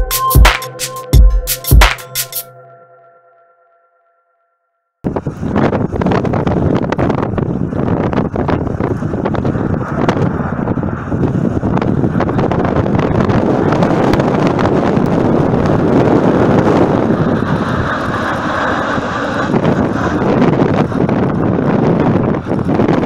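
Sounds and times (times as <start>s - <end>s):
wind buffeting microphone: 5.0s - 23.0s
jet engines rushing overhead: 5.1s - 23.0s.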